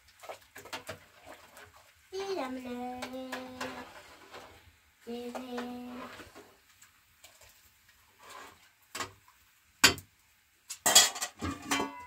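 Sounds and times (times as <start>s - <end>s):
objects clattering: 10.8s - 12.0s.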